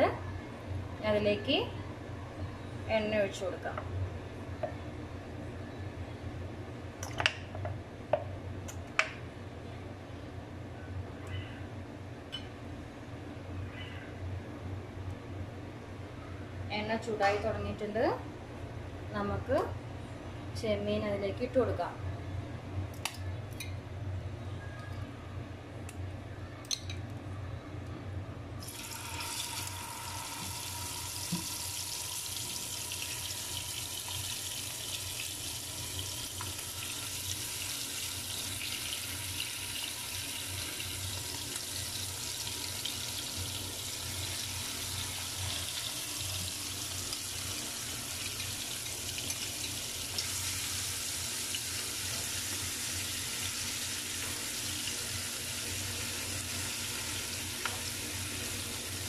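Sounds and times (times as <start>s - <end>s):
prawns sizzling in hot oil: 28.6s - 59.0s.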